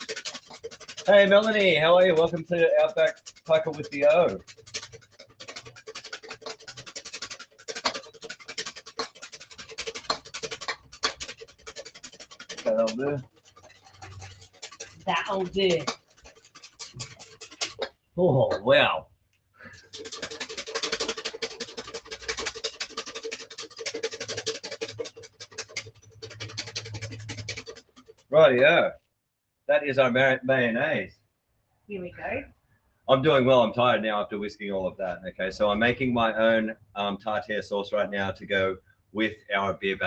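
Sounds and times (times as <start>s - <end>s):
whisk beating in metal bowl: 0.0s - 17.9s, 19.8s - 28.4s.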